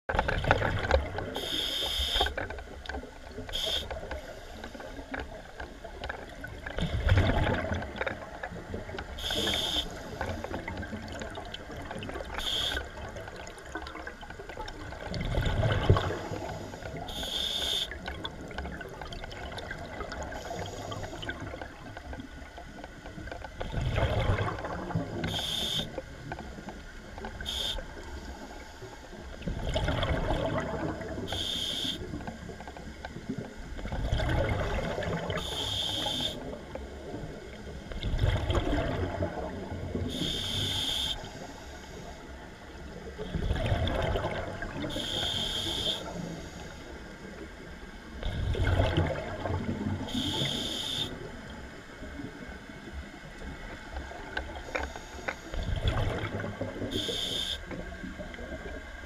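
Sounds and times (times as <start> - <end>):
regulator hissing inhalations: 1.4 - 2.3, 3.6 - 3.9, 9.2 - 10.4, 12.4 - 12.8, 16.4 - 18.0, 25.3 - 25.9, 35.4 - 36.4, 40.1 - 42.2, 45.0 - 46.9, 50.2 - 51.1, 57.0 - 57.6.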